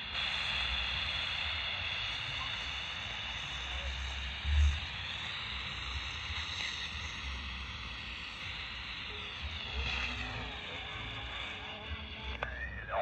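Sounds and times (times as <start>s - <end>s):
radio static hiss: 0.0s - 13.0s
faint distant radio transmission: 8.4s - 13.0s.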